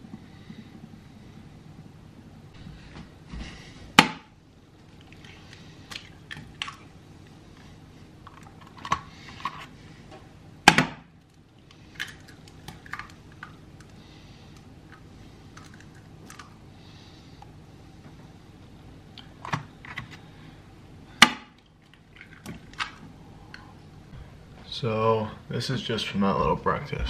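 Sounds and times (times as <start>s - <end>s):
eggshell cracking: 10.7s - 14.0s, 14.9s - 16.6s.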